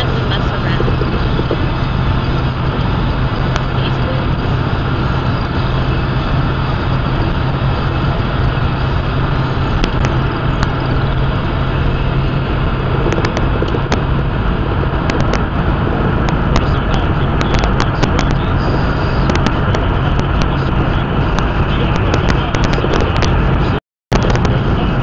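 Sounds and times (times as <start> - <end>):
engine drone: 0.0 - 25.0.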